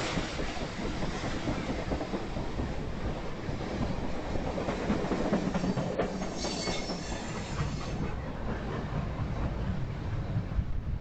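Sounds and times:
train wheels rumbling and clicking: 0:00.0 - 0:11.0
faint high wheel squeal: 0:05.6 - 0:08.0.

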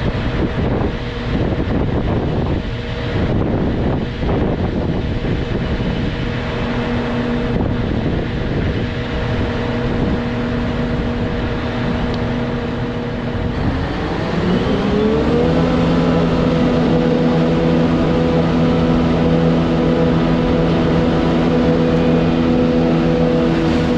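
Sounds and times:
wind noise on microphone: 0:00.0 - 0:23.9
engine revving up: 0:09.6 - 0:23.9.

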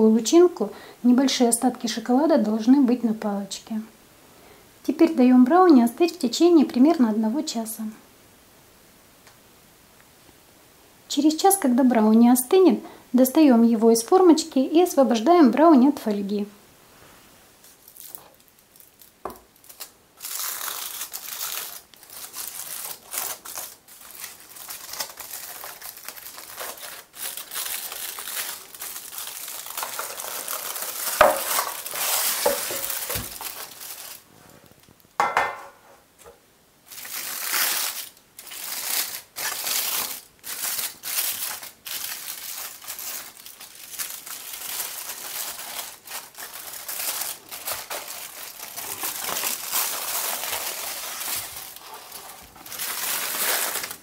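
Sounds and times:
aluminium foil crinkling: 0:17.6 - 0:35.0, 0:36.9 - 0:54.0
metal pan knocking: 0:35.2 - 0:35.8.

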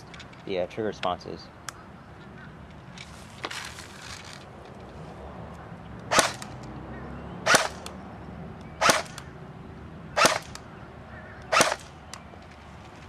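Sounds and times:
airsoft rifle shots: 0:06.1 - 0:06.6, 0:07.4 - 0:07.9, 0:08.8 - 0:09.2, 0:10.2 - 0:10.6, 0:11.5 - 0:11.9.

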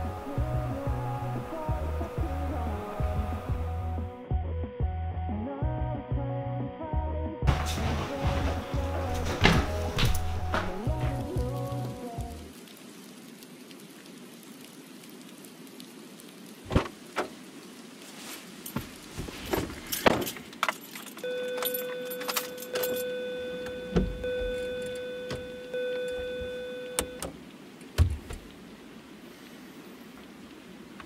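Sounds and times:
electronic buzzing tone: 0:21.3 - 0:27.3.

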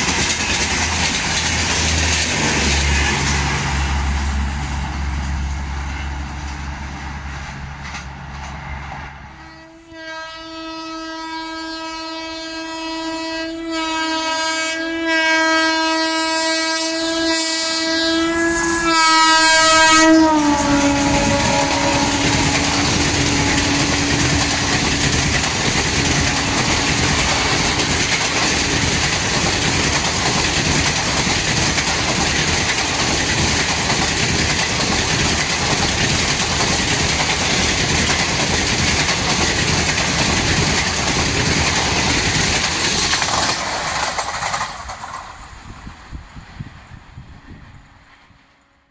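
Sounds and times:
train wheels rattling on rails: 0:00.0 - 0:09.6, 0:17.7 - 0:48.7
train horn: 0:09.2 - 0:28.6.

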